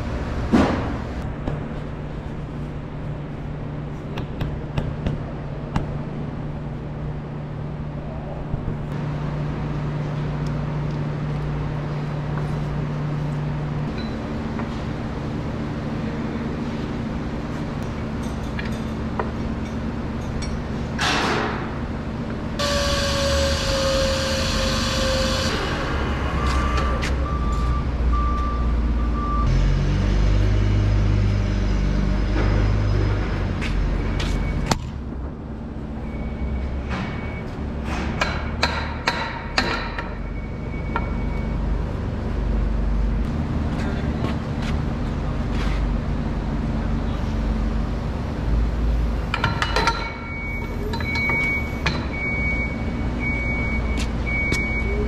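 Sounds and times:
beeps: 50.2s - 55.0s.

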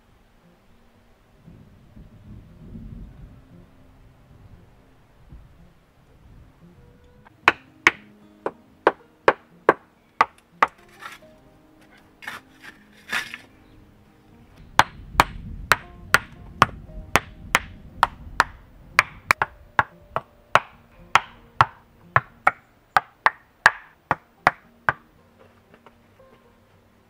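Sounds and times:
shovel scraping dry soil: 10.6s - 13.6s.

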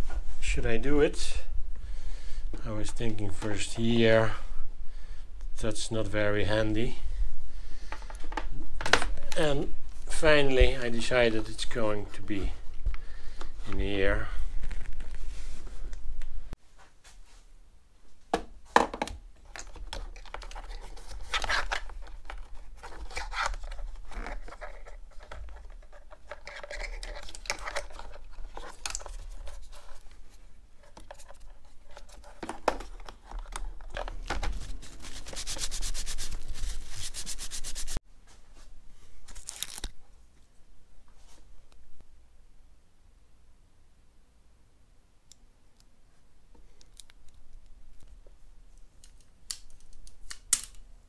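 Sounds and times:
rubbing and scraping noises: 19.4s - 38.0s.

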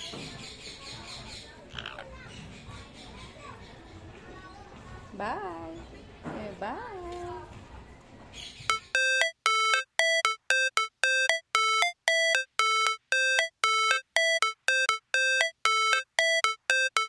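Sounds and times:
electronic jingle: 8.7s - 17.0s.

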